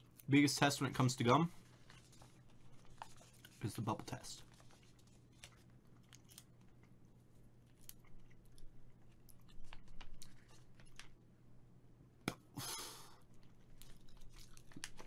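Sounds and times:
low electrical hum: 0.0s - 15.0s
wet gum chewing: 7.7s - 11.2s, 13.4s - 15.0s.

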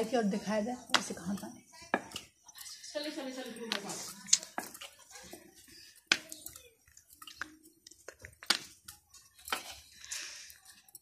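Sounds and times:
dough handling noise: 3.6s - 11.0s.

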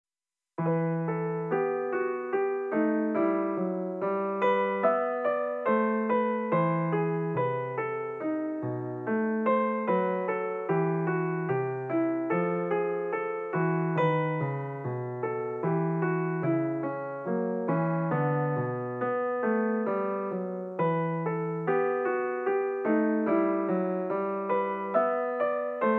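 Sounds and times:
piano-like keyboard notes: 0.6s - 25.9s.

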